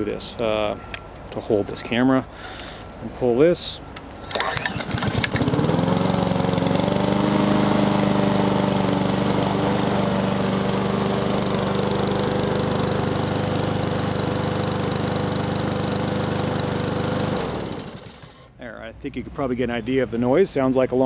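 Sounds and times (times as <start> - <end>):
lawn mower engine running: 4.2 - 18.5.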